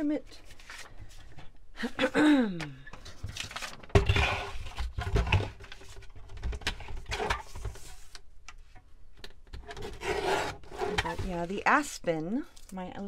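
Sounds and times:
paper rustling and handling clicks: 0:03.0 - 0:08.2.

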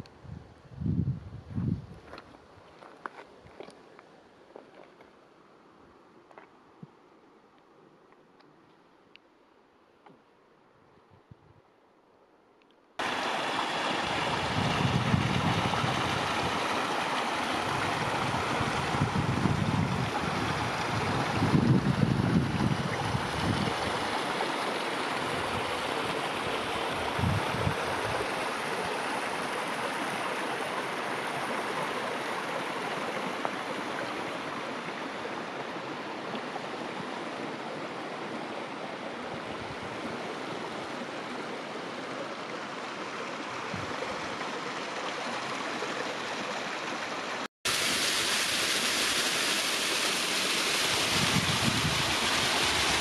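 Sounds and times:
wind buffeting microphone: 0:00.2 - 0:02.2, 0:14.0 - 0:16.9, 0:17.5 - 0:24.1, 0:25.2 - 0:28.4, 0:43.6 - 0:44.3, 0:50.9 - 0:53.0
running water rushing: 0:13.0 - 0:53.0.

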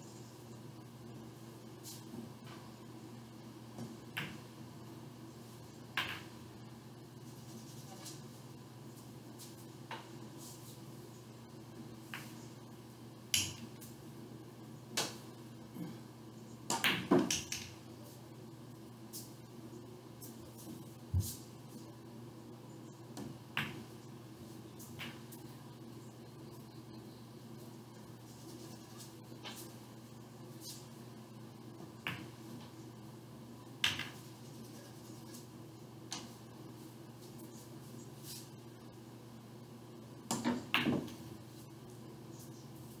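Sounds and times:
low room hum: 0:00.0 - 0:43.0
pool cue and balls clicking: 0:05.9 - 0:06.4, 0:16.7 - 0:17.8, 0:23.1 - 0:23.9, 0:24.8 - 0:25.5, 0:31.8 - 0:32.8, 0:33.8 - 0:34.3, 0:40.3 - 0:41.3.

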